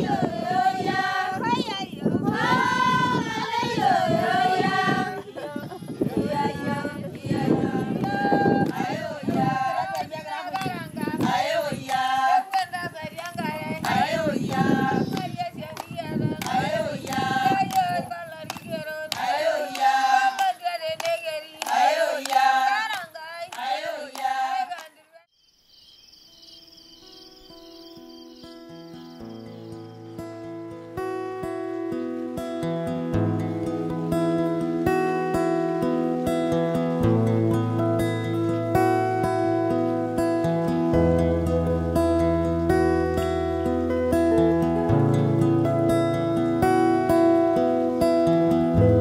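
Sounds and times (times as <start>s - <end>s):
women singing long held notes: 0.0s - 25.3s
high rapidly pulsing chirp: 25.3s - 30.3s.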